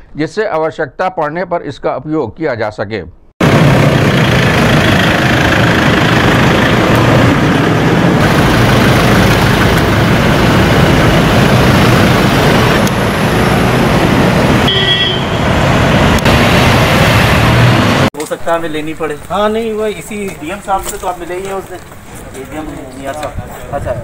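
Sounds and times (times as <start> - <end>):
cars driving past: 3.4 - 18.1.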